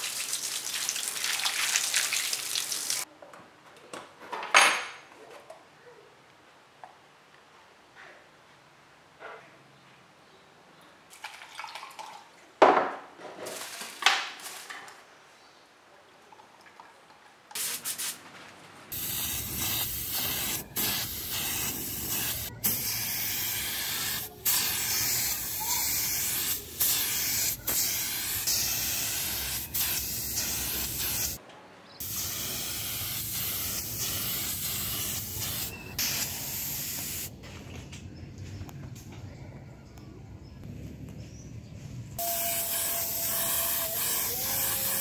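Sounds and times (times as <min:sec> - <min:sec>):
paint spray gun hissing: 0:18.9 - 0:31.4, 0:32.0 - 0:37.3, 0:42.2 - 0:45.0.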